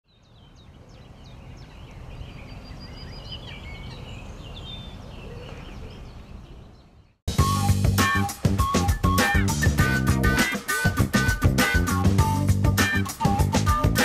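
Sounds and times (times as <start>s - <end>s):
birds chirping and warbling: 0.1s - 7.2s.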